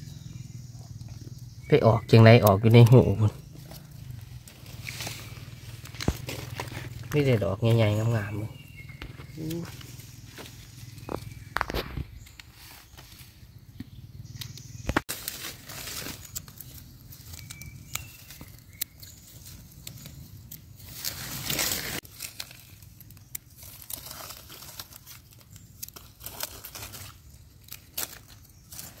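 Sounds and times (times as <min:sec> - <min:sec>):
dry leaves rustling and crackling: 0:02.6 - 0:13.5, 0:14.6 - 0:29.0.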